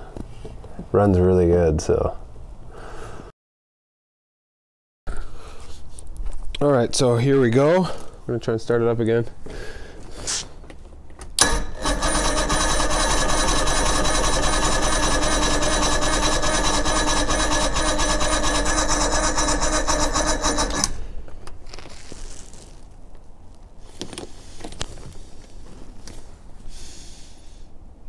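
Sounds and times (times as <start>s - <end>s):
starter click: 11.4s - 21.0s
electric starter cranking: 11.4s - 21.2s.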